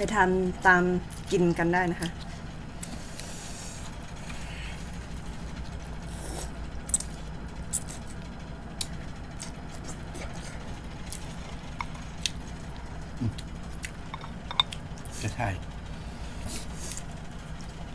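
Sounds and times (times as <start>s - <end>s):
slurping and chewing: 6.0s - 8.2s, 8.8s - 12.6s.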